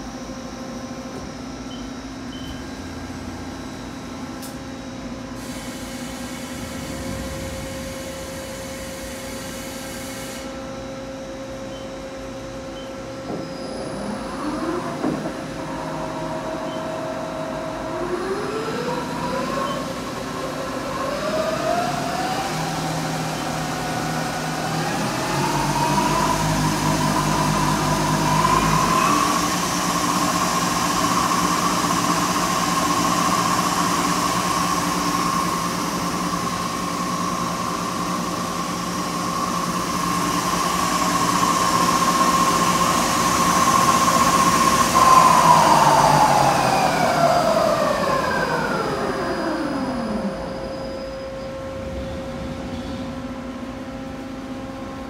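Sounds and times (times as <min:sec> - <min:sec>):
low hum: 0:06.4 - 0:09.5
lathe spindle whine: 0:13.5 - 0:52.2.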